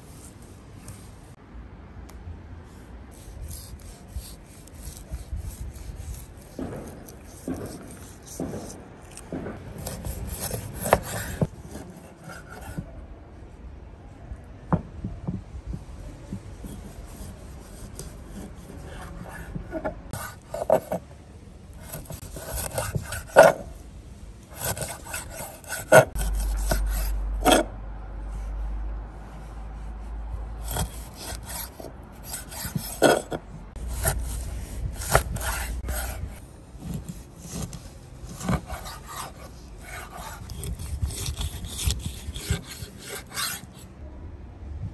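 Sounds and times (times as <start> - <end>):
knife scraping cuts through meat: 3.2 - 12.9, 21.8 - 23.7, 24.5 - 27.7, 30.6 - 43.8.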